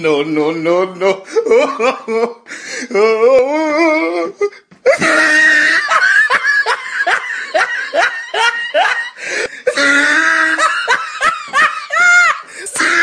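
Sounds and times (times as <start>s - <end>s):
high-pitched laughter: 4.9s - 13.0s.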